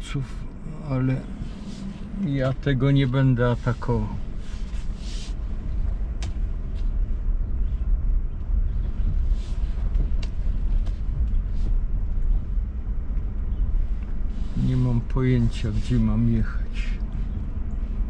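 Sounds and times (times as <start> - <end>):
tyres rumbling on dirt: 0.0 - 7.9, 8.5 - 17.8.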